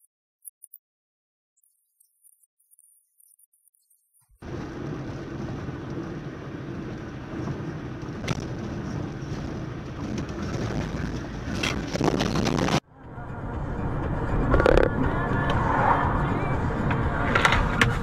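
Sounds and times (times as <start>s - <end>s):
car driving on rough road: 4.4s - 18.0s.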